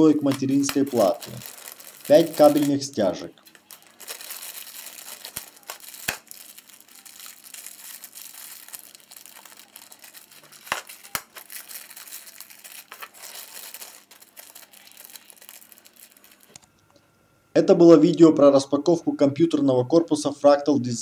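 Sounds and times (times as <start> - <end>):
plastic bags crinkling: 0.0 - 16.7.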